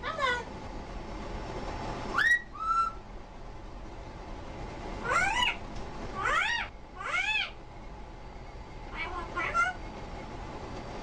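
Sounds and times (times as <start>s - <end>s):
parrot calling: 0.0s - 0.5s, 2.1s - 3.0s, 5.0s - 7.6s, 8.9s - 9.8s.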